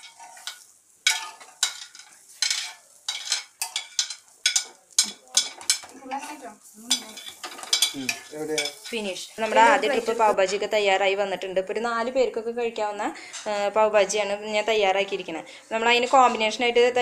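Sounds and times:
metal spatula scraping griddle: 0.0 - 10.4
light sizzle: 0.0 - 17.0.

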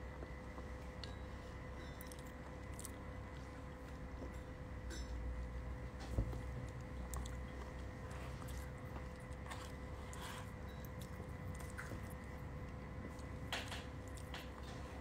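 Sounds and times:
faint electrical hum: 0.0 - 15.0
quiet chewing: 0.1 - 5.2, 5.9 - 15.0.

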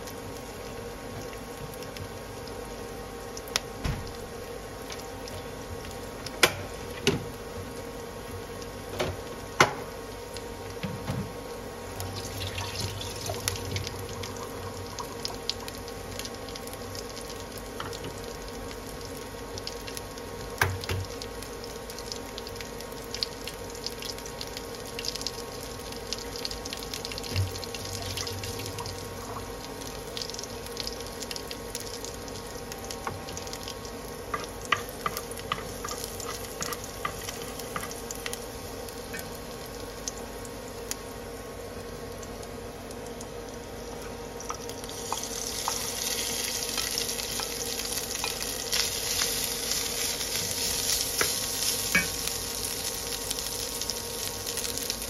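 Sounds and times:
garlic sizzling in oil: 0.0 - 55.0
oil popping and crackling: 12.0 - 41.0, 44.0 - 55.0.

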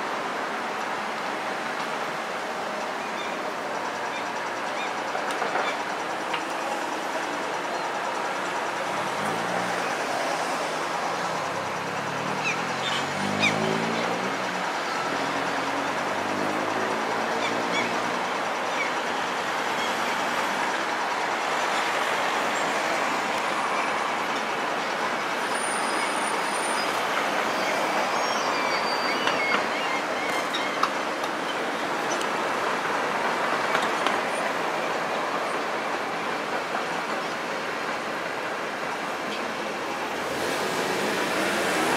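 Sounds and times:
excavator diesel engine under load: 8.1 - 18.6.

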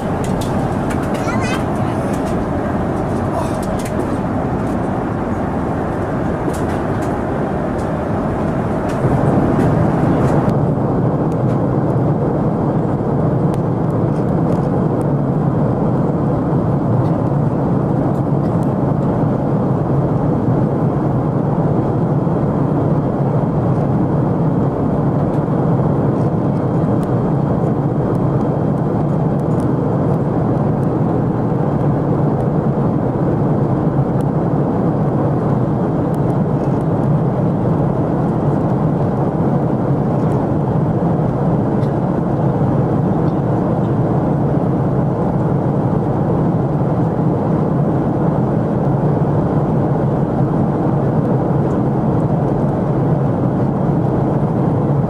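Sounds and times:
airplane cabin engine rush: 0.0 - 55.0.

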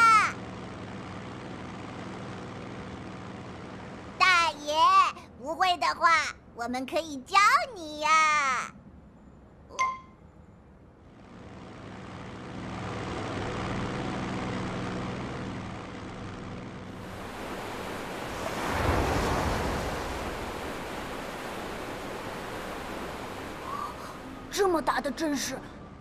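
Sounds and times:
helicopter engine hum: 0.0 - 5.3, 10.9 - 26.0
wind and waves: 16.9 - 25.9.

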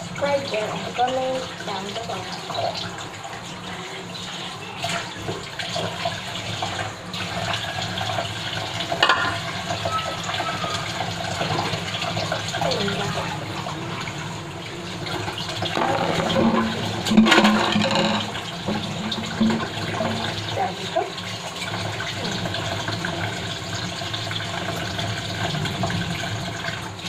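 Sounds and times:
kitchen tap running into sink: 0.0 - 27.0
dishes clattering: 8.9 - 10.2, 15.6 - 20.4.

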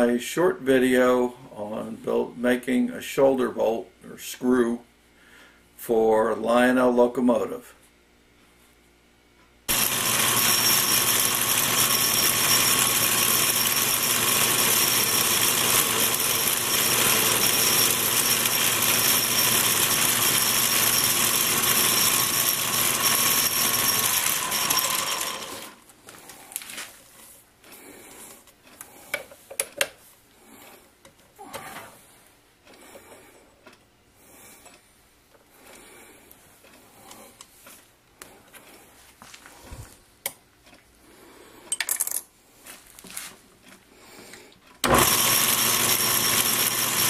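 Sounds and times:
lathe whirring: 9.7 - 25.8, 44.8 - 47.0.

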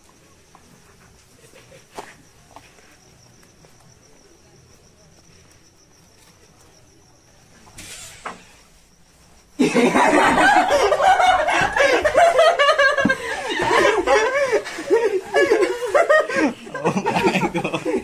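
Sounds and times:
crickets chirring: 0.0 - 18.0
people laughing and yelling: 9.6 - 18.0.

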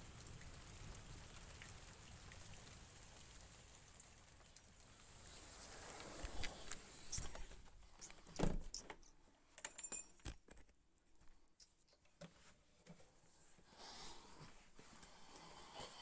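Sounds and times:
high metallic jingle: 9.6 - 10.2.

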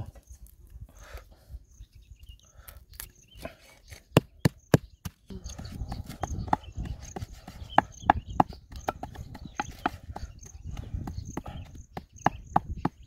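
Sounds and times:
pestle knocking in wooden mortar: 4.2 - 13.0.

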